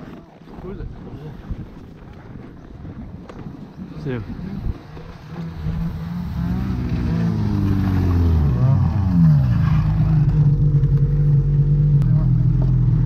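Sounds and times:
snowmobile engine: 3.5s - 13.0s.

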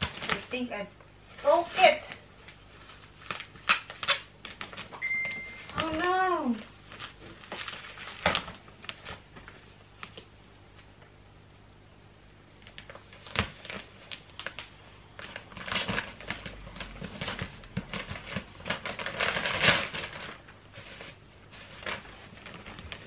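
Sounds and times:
plastic wrapping crinkling: 0.0s - 11.0s, 12.5s - 23.0s.

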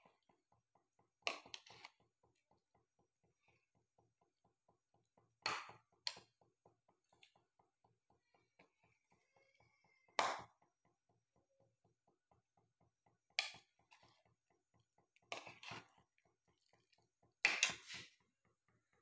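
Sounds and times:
faint steady ticking: 0.0s - 19.0s.

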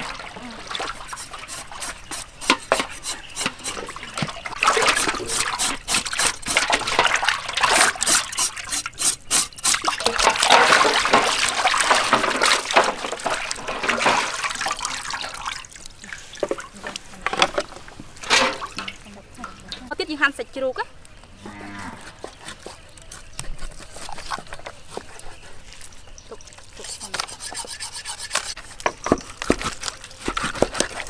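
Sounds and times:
water splashing in metal basin: 0.0s - 19.9s.

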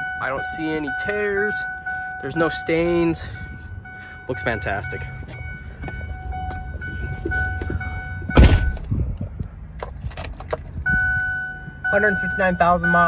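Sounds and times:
heavy thump in truck cab: 7.2s - 9.0s.

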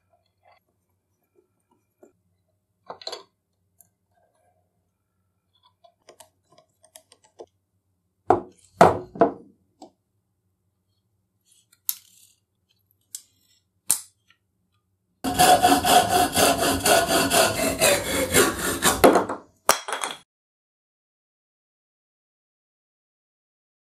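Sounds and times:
hacksaw cutting metal: 15.3s - 19.2s.

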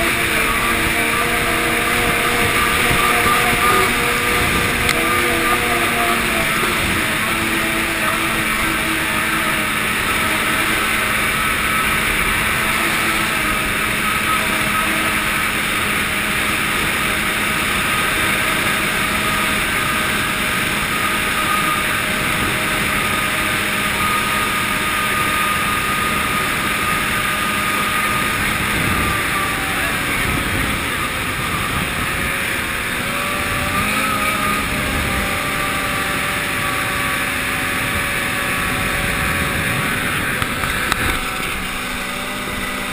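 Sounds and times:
snowmobile engine running: 0.0s - 42.9s.

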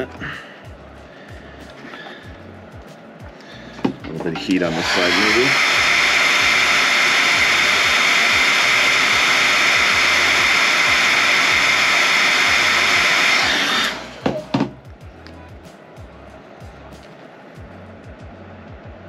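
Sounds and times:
hair dryer running: 3.5s - 14.8s.

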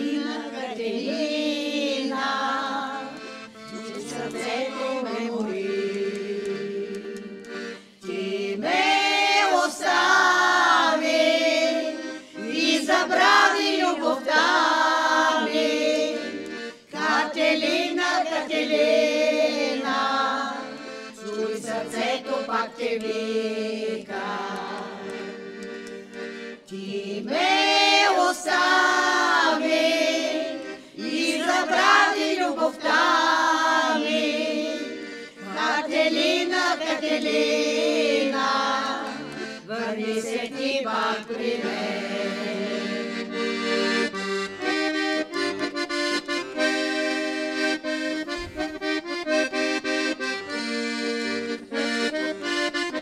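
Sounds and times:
group singing folk song: 0.0s - 53.0s.

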